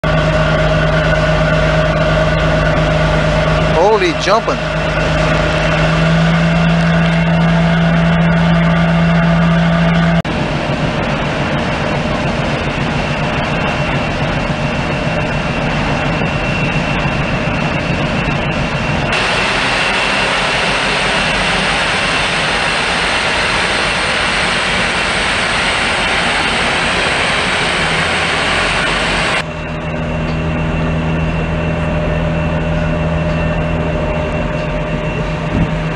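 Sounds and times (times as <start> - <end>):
ship engines droning: 0.0 - 35.9
loud rushing noise: 18.6 - 29.5.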